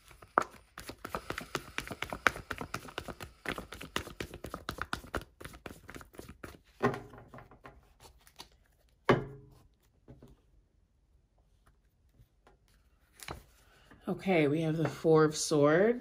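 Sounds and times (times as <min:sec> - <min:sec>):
cards being shuffled: 0:00.0 - 0:06.8, 0:07.8 - 0:09.0, 0:12.7 - 0:13.6.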